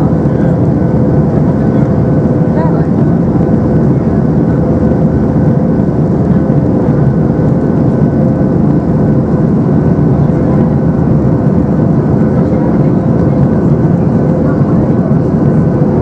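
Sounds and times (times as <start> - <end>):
jet engine rumble in cabin: 0.0 - 16.0.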